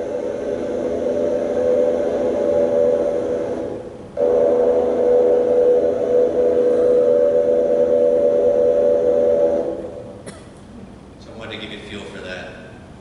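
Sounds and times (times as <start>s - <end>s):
airboat engine drone: 0.0s - 10.2s.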